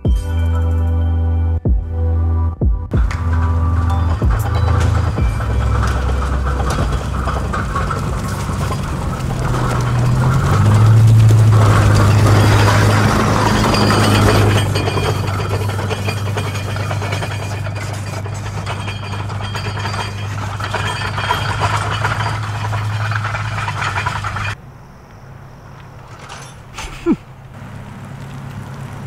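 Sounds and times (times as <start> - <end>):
car engine humming: 0.0 - 29.0
wheels rumbling on track: 2.9 - 29.0.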